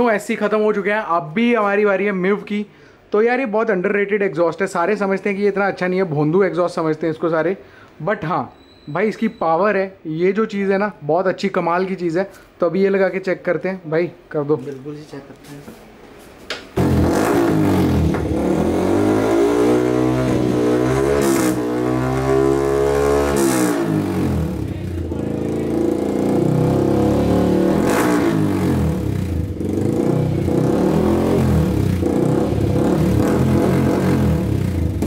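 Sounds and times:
motorcycle engine revving: 16.8s - 35.0s.

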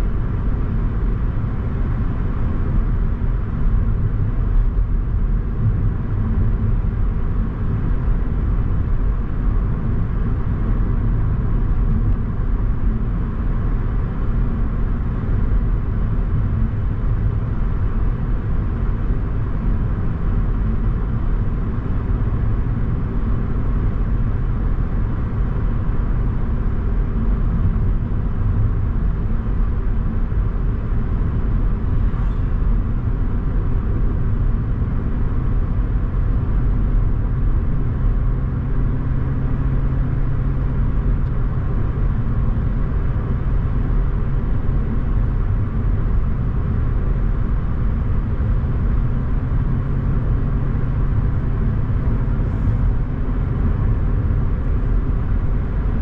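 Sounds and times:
car tyres and engine rumble: 0.0s - 56.0s.

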